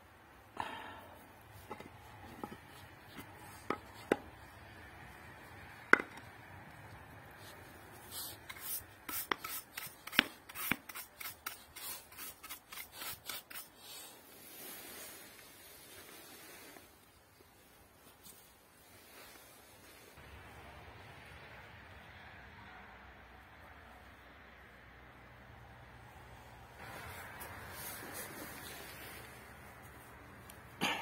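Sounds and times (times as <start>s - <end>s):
hand tool scraping gravel: 7.5s - 16.9s, 26.8s - 29.5s.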